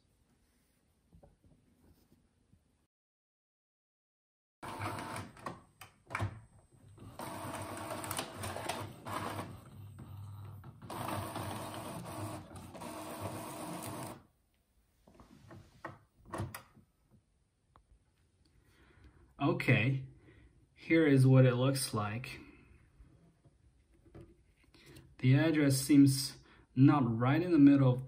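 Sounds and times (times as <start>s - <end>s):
inkjet printer printing: 4.6s - 5.4s, 6.9s - 14.2s.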